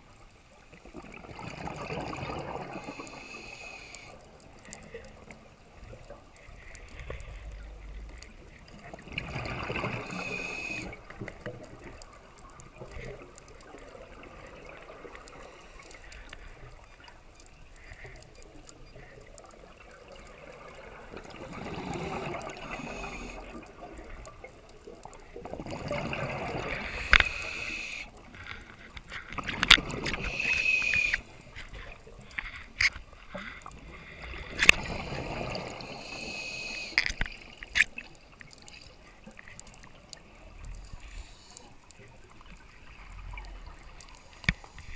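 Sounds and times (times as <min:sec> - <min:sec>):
scuba regulator bubbling exhalations: 0:21.1 - 0:23.8, 0:25.4 - 0:28.1.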